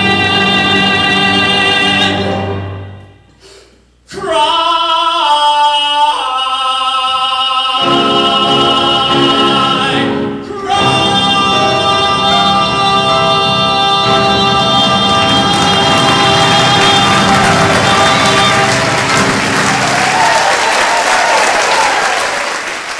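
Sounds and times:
man singing a ballad: 0.0s - 2.4s, 4.1s - 19.1s
musical accompaniment: 0.0s - 3.4s, 7.8s - 21.9s.

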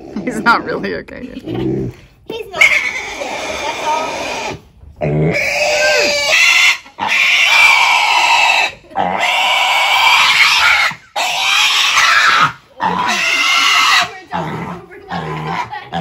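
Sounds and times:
piglet squealing: 2.6s - 4.6s, 5.3s - 14.2s.

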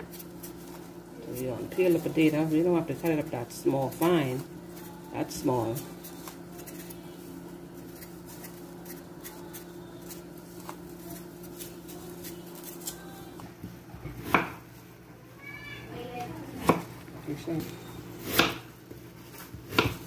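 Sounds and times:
knife peeling potatoes: 0.0s - 13.4s, 18.2s - 20.0s
knife chopping on wooden board: 14.1s - 14.6s, 16.6s - 16.9s, 18.2s - 18.7s, 19.6s - 20.0s.

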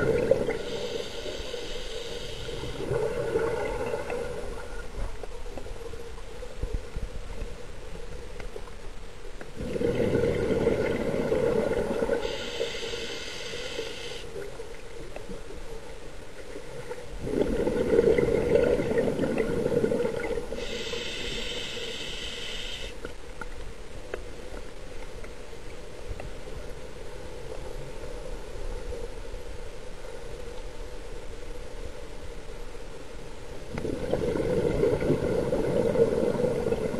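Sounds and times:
exhaled bubbles rushing: 0.0s - 0.8s, 2.5s - 4.8s, 9.6s - 12.3s, 17.2s - 20.6s, 33.7s - 36.9s
regulator inhalation hiss: 0.4s - 2.8s, 12.2s - 14.3s, 20.5s - 23.0s.

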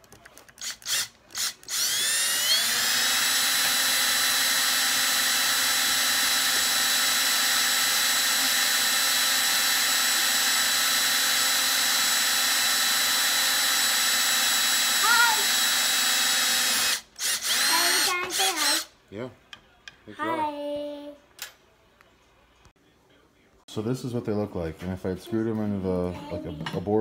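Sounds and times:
cordless drill whining: 0.6s - 18.9s
drill trigger blips: 0.6s - 18.9s.

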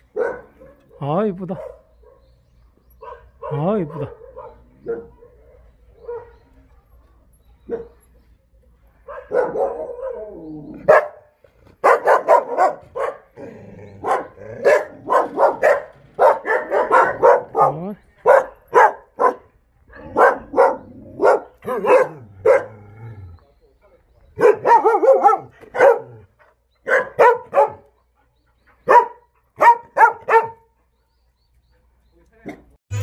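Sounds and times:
dogs barking rapidly: 0.0s - 2.4s, 3.0s - 6.5s, 9.1s - 22.9s, 24.4s - 28.0s, 28.8s - 30.8s.

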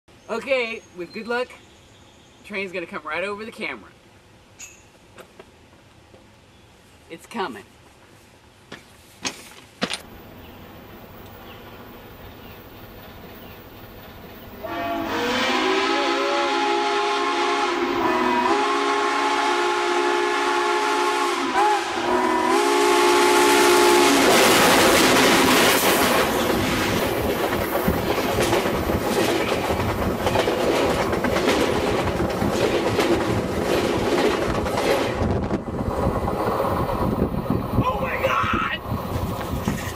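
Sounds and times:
steam whistle blasts: 14.6s - 24.3s
locomotive heavy rumble: 23.0s - 38.1s
wheels clattering over rail: 24.3s - 35.3s.

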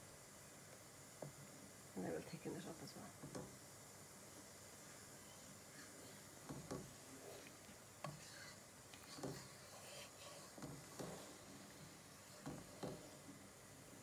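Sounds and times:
wooden spoon scraping frying pan: 7.2s - 13.1s.

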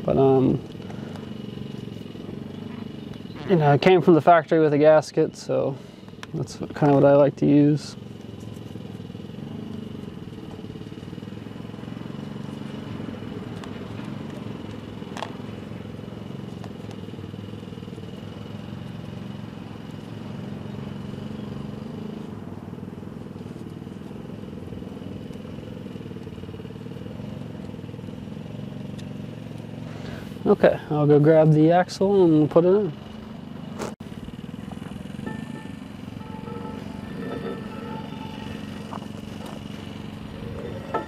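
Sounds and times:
motor droning: 0.0s - 31.5s, 32.1s - 41.0s.

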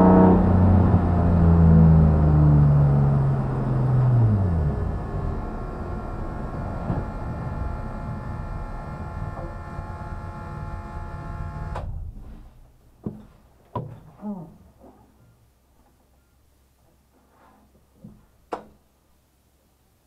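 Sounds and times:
race car engine idling: 0.0s - 11.8s.

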